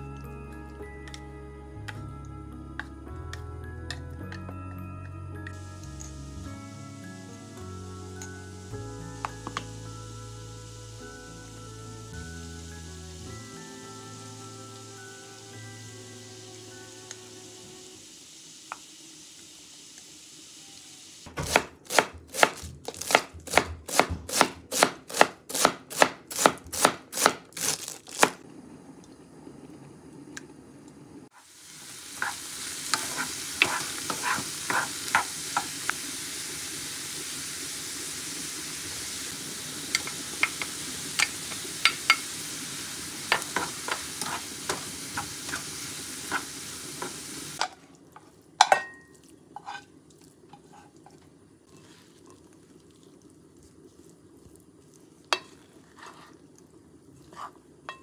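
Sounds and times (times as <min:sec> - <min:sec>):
celery sizzling in frying pan: 0:05.4 - 0:28.5, 0:31.2 - 0:58.0
knife chopping on cutting board: 0:21.3 - 0:27.4
wooden spatula scraping and tapping: 0:32.2 - 0:35.7, 0:43.3 - 0:48.8, 0:49.6 - 0:49.9, 0:50.5 - 0:52.4, 0:55.3 - 0:56.4, 0:57.2 - 0:58.0.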